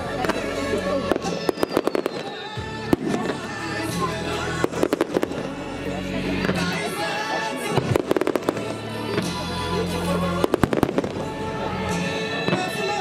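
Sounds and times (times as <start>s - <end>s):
fireworks bangs and crackles: 0.0s - 5.6s, 7.6s - 9.5s, 10.2s - 13.0s
music playing: 0.0s - 13.0s.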